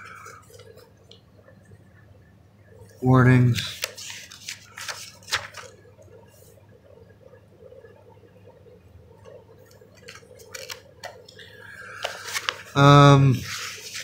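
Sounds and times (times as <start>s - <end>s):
faint room hum: 0.0s - 14.0s
paper pages rustling: 3.5s - 5.8s, 9.7s - 11.2s, 11.8s - 14.0s.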